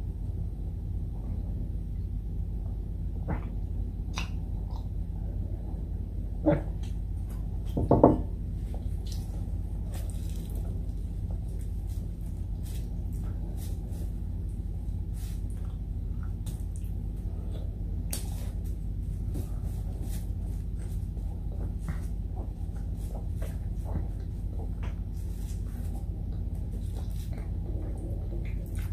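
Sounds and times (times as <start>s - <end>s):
steady low hum: 0.0s - 28.9s
wet chewing and mouth noises: 3.3s - 5.1s, 8.7s - 28.9s.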